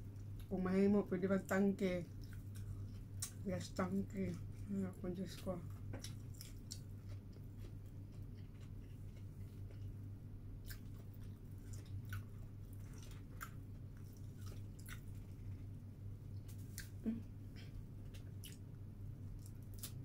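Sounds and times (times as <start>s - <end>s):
steady low hum: 0.0s - 20.0s
person chewing food: 2.1s - 3.4s, 5.4s - 20.0s.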